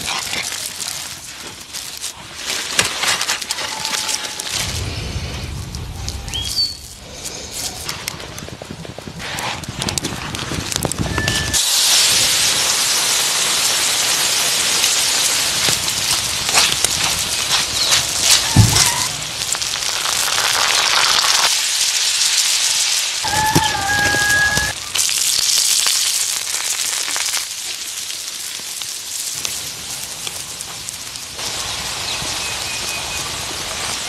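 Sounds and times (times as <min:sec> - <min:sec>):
food sizzling on hot stone: 0:10.7 - 0:34.0.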